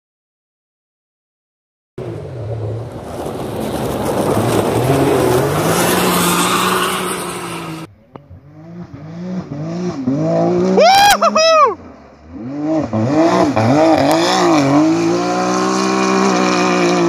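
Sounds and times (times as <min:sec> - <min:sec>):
distant engine approaching: 0:02.0 - 0:17.0
engine at high revs: 0:04.2 - 0:17.0.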